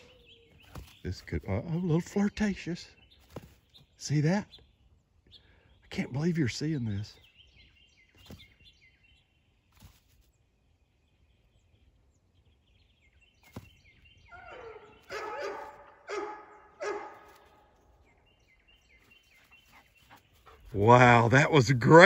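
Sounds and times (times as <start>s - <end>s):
faint birds chirping: 0.0s - 22.0s
dog making high calls: 14.3s - 17.4s.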